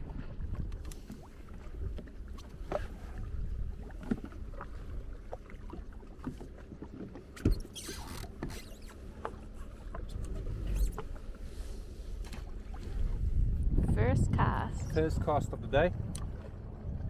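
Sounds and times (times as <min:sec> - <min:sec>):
small waves lapping hull: 0:00.0 - 0:17.0
knocks and creaks: 0:06.2 - 0:11.3.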